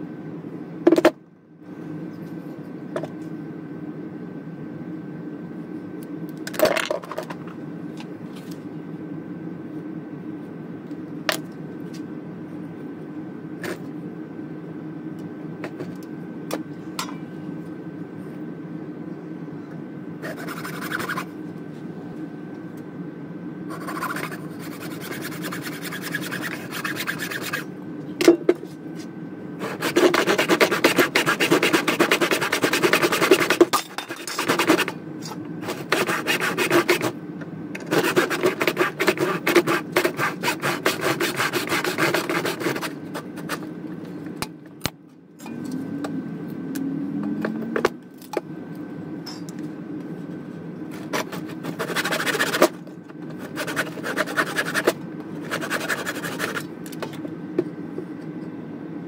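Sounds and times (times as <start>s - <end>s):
handsaw cutting wood: 23.8s - 27.6s, 29.6s - 33.7s, 34.4s - 34.9s, 35.6s - 37.1s, 37.9s - 42.9s, 53.5s - 54.9s, 55.5s - 56.6s.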